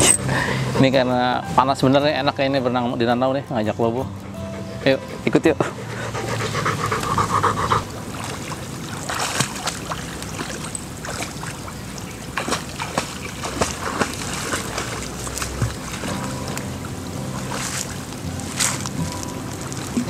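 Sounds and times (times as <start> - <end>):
water splashing: 6.2 - 20.0.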